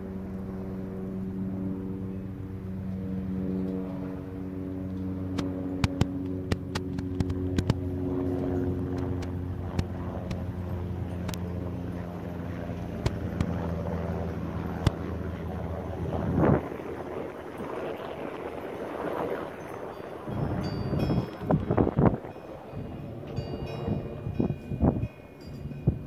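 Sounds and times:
helicopter flying overhead: 0:00.0 - 0:26.0
sharp clicks: 0:05.3 - 0:07.8.

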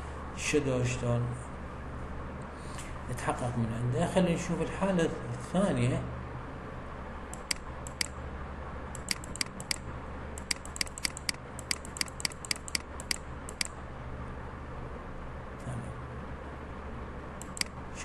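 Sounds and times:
low steady hum: 0:00.0 - 0:18.0
mouse button clicking: 0:10.4 - 0:13.7.

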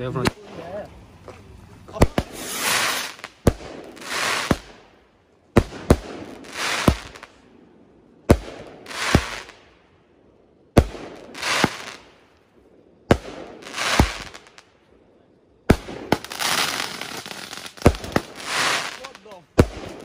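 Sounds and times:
firework hissing burst: 0:02.0 - 0:04.8, 0:05.6 - 0:07.3, 0:08.3 - 0:09.6, 0:10.8 - 0:12.1, 0:13.1 - 0:14.6, 0:15.7 - 0:20.0.

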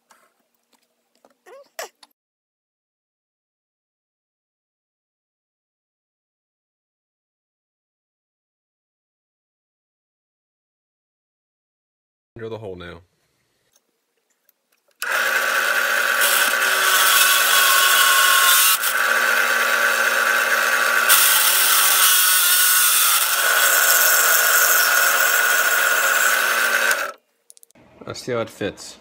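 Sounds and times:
drill press drilling metal: 0:15.0 - 0:27.2.

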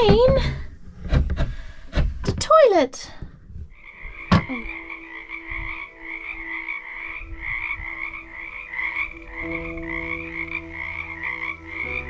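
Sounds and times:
frogs croaking: 0:03.6 - 0:12.0.

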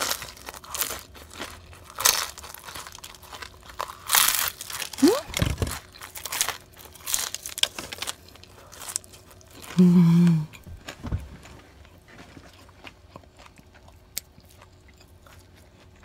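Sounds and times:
crunchy food being chewed: 0:00.0 - 0:09.8, 0:10.4 - 0:16.0.

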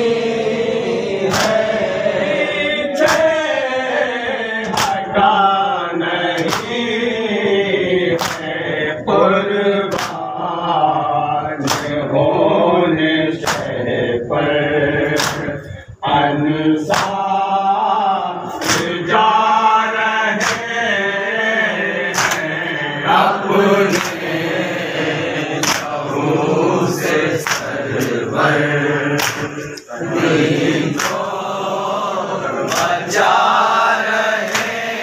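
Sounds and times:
men chanting together: 0:00.0 - 0:35.0
chest-beating slaps: 0:01.3 - 0:01.8, 0:03.0 - 0:03.3, 0:04.6 - 0:05.0, 0:06.4 - 0:06.7, 0:08.2 - 0:08.6, 0:09.9 - 0:10.2, 0:11.6 - 0:12.0, 0:13.4 - 0:13.7, 0:15.2 - 0:15.5, 0:16.9 - 0:17.2, 0:18.6 - 0:19.0, 0:20.4 - 0:20.7, 0:22.1 - 0:22.5, 0:23.9 - 0:24.3, 0:25.6 - 0:26.0, 0:27.4 - 0:28.2, 0:29.2 - 0:29.9, 0:30.8 - 0:31.3, 0:32.6 - 0:33.0, 0:34.4 - 0:34.8.

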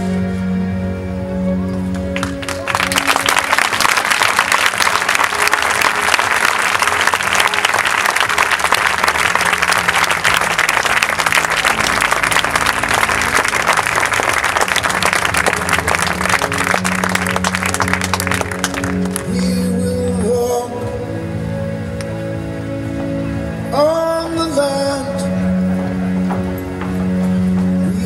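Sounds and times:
large audience applauding: 0:01.9 - 0:19.4.

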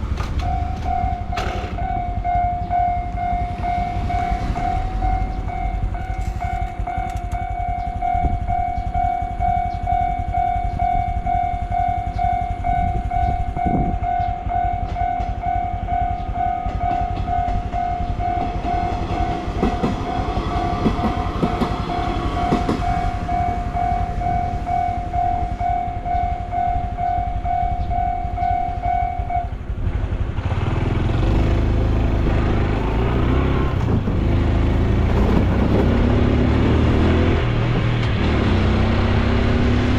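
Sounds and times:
level crossing warning bell: 0:00.0 - 0:29.7
train passing: 0:00.0 - 0:39.9
motorcycle engine pulling away: 0:29.9 - 0:39.9.

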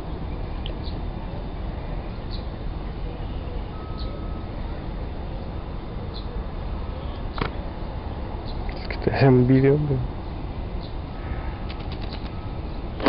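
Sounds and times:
faint high bird chirps: 0:02.2 - 0:04.5.

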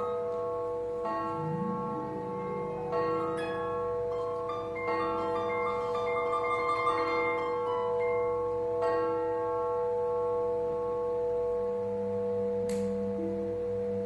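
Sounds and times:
steady held note: 0:00.0 - 0:09.9
ringing bell-like tones: 0:00.0 - 0:12.5.

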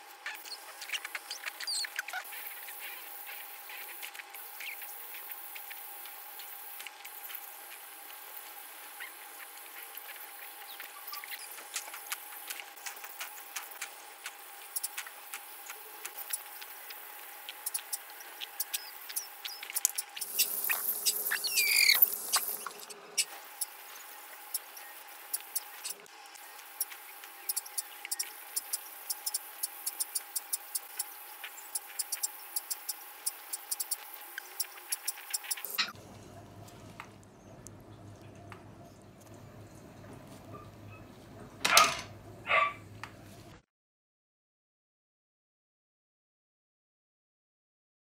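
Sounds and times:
scaler tip ticking on teeth: 0:11.2 - 0:16.8, 0:17.5 - 0:23.8, 0:24.5 - 0:26.0, 0:26.8 - 0:35.8
dental scaler high hiss: 0:17.6 - 0:23.8.

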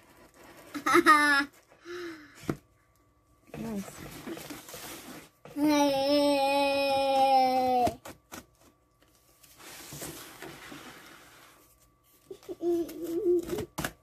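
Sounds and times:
child's voice: 0:05.5 - 0:08.0.

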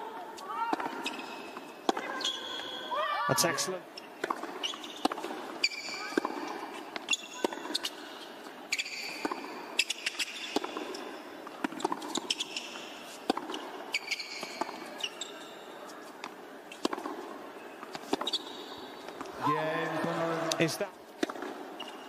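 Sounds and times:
tennis ball struck by racquets: 0:00.7 - 0:02.2, 0:04.2 - 0:08.0, 0:08.7 - 0:15.2, 0:16.2 - 0:19.4, 0:21.2 - 0:21.9
shoe squeaks: 0:00.9 - 0:11.0, 0:11.8 - 0:16.0, 0:17.8 - 0:19.2, 0:21.7 - 0:22.0.

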